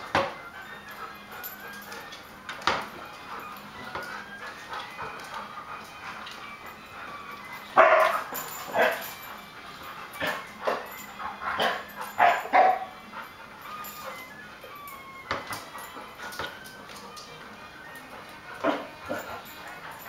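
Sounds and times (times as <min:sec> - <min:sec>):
dogs barking sharply: 0:07.8 - 0:08.2, 0:11.6 - 0:12.9.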